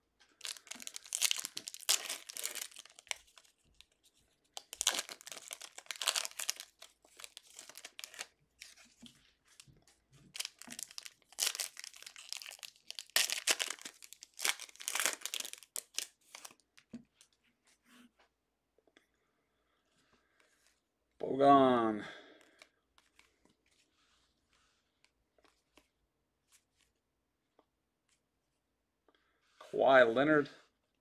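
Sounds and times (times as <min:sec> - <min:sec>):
foil wrappers crinkling and tearing: 0:00.4 - 0:03.9, 0:04.5 - 0:08.8, 0:10.3 - 0:16.6.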